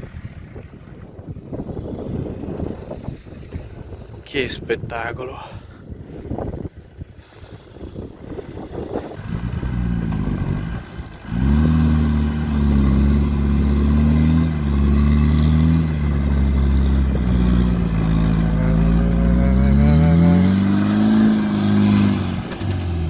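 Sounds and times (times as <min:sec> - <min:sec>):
wheels spinning in sand: 0:00.0 - 0:04.2, 0:05.8 - 0:19.5
engine revving hard: 0:09.2 - 0:23.0.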